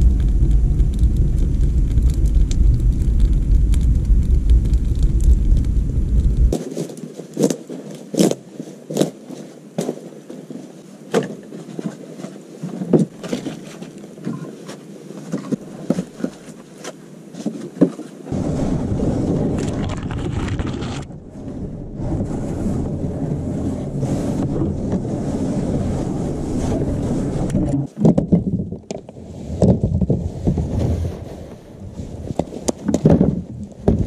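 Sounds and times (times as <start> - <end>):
steady low rushing noise: 0.0 - 6.5, 18.3 - 27.9.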